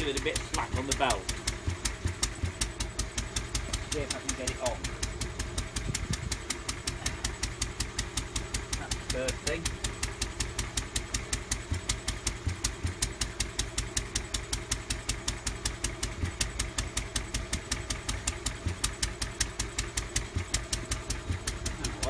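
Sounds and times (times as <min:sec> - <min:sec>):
stationary engine running: 0:00.0 - 0:22.0.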